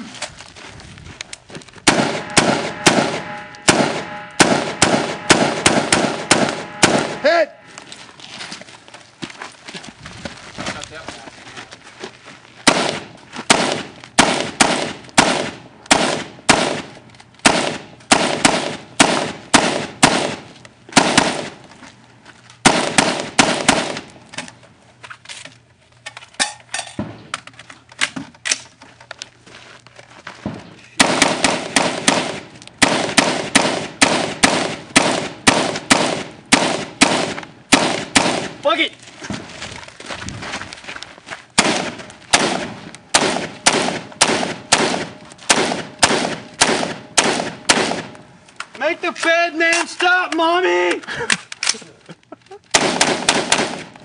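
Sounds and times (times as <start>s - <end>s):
rifle shots: 1.8s - 7.5s, 12.7s - 21.6s, 22.6s - 24.2s, 30.5s - 38.6s, 41.6s - 48.3s, 52.7s - 54.0s.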